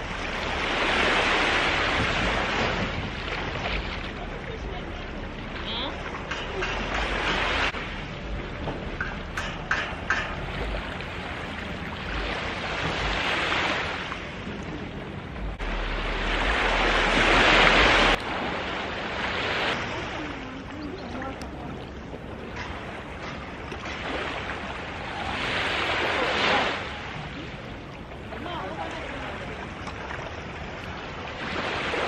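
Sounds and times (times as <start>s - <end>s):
waves washing onto beach: 0.0s - 32.0s
wind rumble on microphone: 0.0s - 32.0s.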